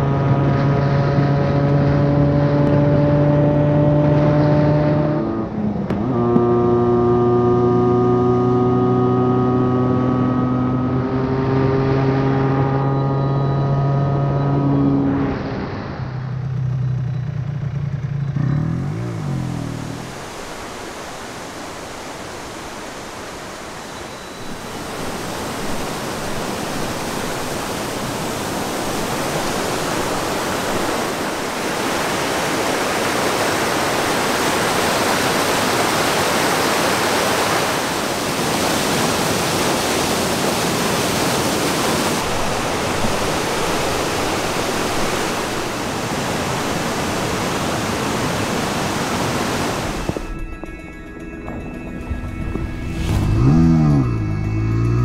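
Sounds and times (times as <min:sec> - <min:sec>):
two-stroke motorcycle engine: 0:16.3 - 0:20.1, 0:53.2 - 0:55.0
river rapids rushing: 0:19.6 - 0:50.3.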